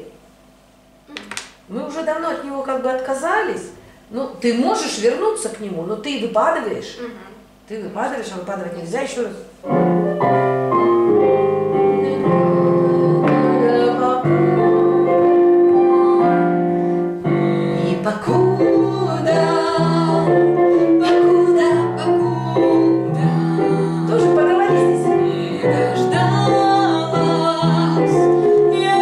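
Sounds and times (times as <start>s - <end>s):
piano accompaniment: 9.6s - 29.0s
woman singing pop song: 12.0s - 16.6s, 17.4s - 29.0s.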